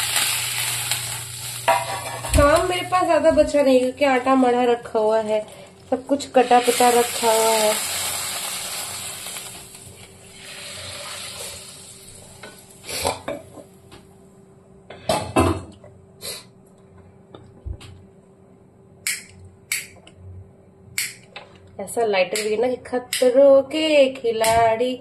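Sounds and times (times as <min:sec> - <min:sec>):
pan sizzling: 0:00.0 - 0:13.1
pots and utensils clanking: 0:00.9 - 0:02.8.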